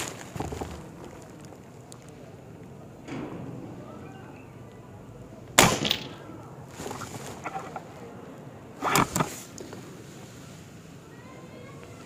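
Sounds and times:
air rifle shot: 0:05.6 - 0:06.3
rifle action clicking and clatter: 0:08.8 - 0:09.4.

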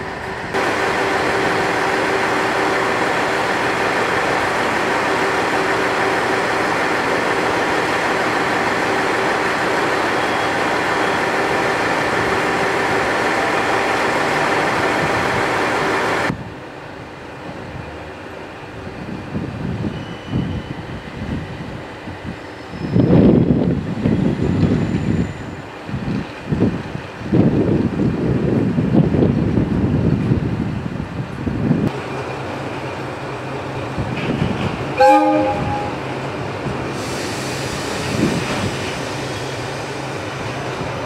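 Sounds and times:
diesel railcar engine idling: 0:00.0 - 0:17.0.

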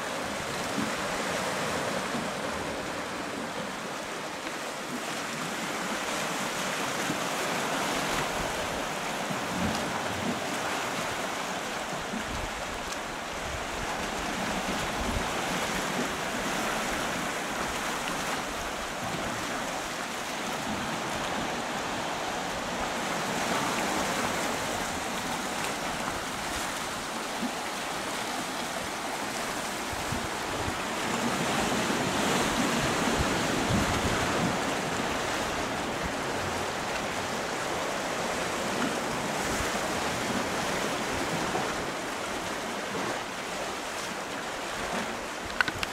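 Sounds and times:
waves breaking on rocks: 0:00.0 - 0:45.9
wind buffeting microphone: 0:29.8 - 0:36.8.

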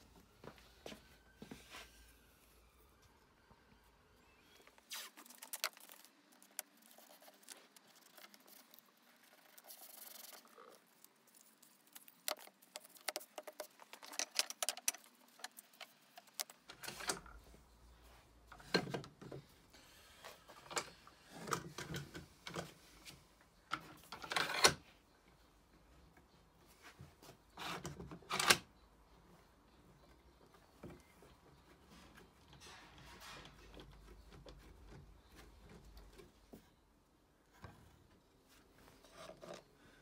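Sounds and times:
wooden pieces clicking and tapping: 0:11.4 - 0:16.7.

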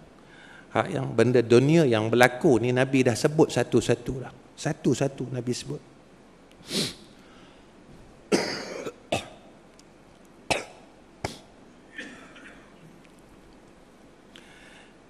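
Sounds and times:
man coughing: 0:08.3 - 0:09.4, 0:10.5 - 0:12.8.

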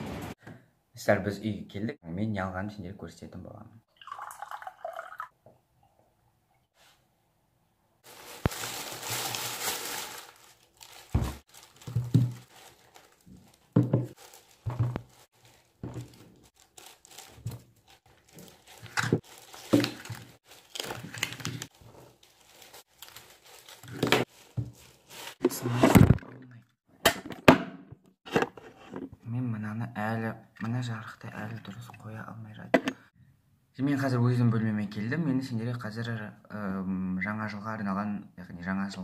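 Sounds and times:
plastic bag rustling: 0:08.0 - 0:26.2
bottles set down on table: 0:13.8 - 0:14.1.

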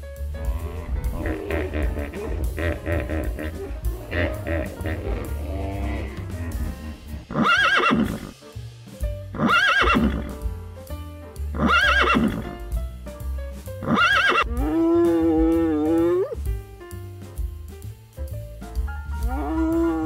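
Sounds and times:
background music with steady beat: 0:00.0 - 0:20.0
horse whinnying: 0:04.6 - 0:08.4, 0:09.4 - 0:10.3, 0:11.6 - 0:12.4, 0:13.8 - 0:16.4, 0:19.2 - 0:20.0.

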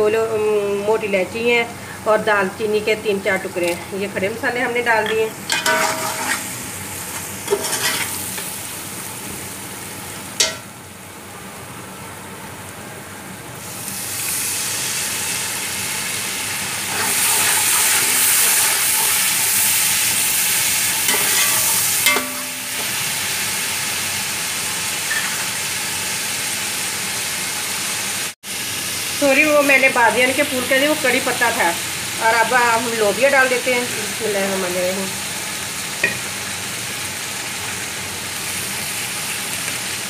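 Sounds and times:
masala sizzling in oil: 0:00.0 - 0:40.0
spoon stirring in pot: 0:05.0 - 0:06.5, 0:07.1 - 0:08.5, 0:21.1 - 0:22.9
spoon knocking on pot: 0:10.4 - 0:10.7, 0:21.1 - 0:23.0.

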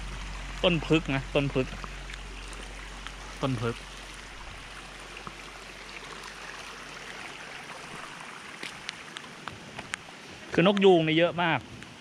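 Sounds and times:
rain falling: 0:00.0 - 0:12.0
stream flowing over rocks: 0:00.0 - 0:12.0
light ticks: 0:10.6 - 0:10.9.

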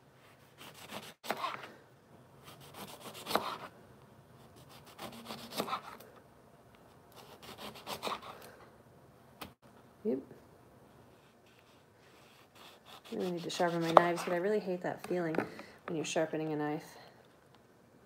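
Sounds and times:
knife sawing through lemon: 0:00.6 - 0:01.6, 0:02.5 - 0:03.7, 0:04.6 - 0:06.0, 0:07.2 - 0:08.4, 0:12.1 - 0:14.3.

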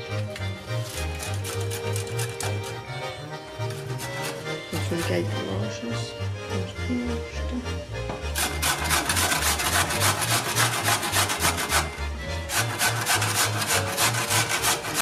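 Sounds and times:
potato grating on metal grater: 0:00.8 - 0:05.4, 0:08.4 - 0:15.0.

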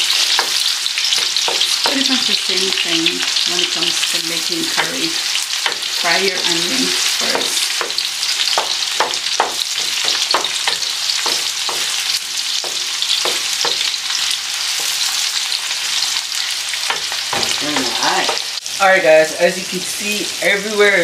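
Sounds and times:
onions sizzling in hot oil: 0:00.0 - 0:21.0
wooden spoon scraping a pan: 0:03.1 - 0:18.6.

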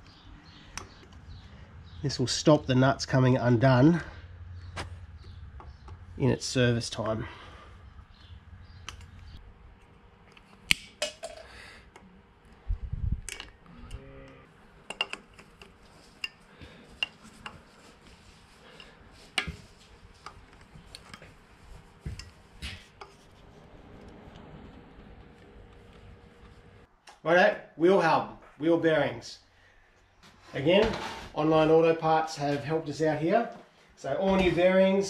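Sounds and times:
wire snapping: 0:10.3 - 0:11.2.

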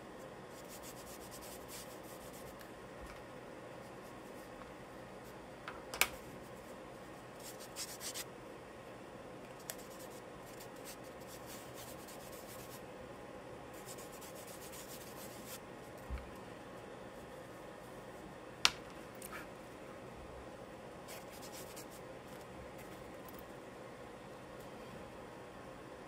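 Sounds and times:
charcoal scratching on paper: 0:00.5 - 0:02.6, 0:07.4 - 0:08.2, 0:09.7 - 0:12.8, 0:13.8 - 0:15.6, 0:21.1 - 0:22.0.

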